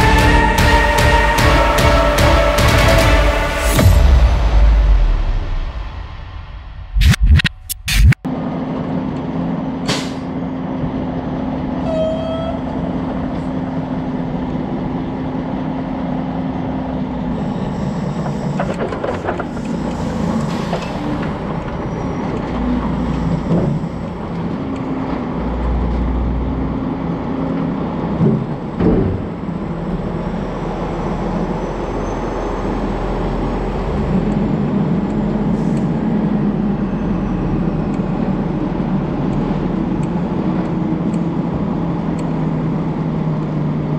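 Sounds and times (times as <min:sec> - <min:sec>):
diesel truck engine droning: 0:00.0 - 0:06.9, 0:08.2 - 0:43.9
trailer knocks: 0:00.0 - 0:08.2, 0:27.7 - 0:30.0.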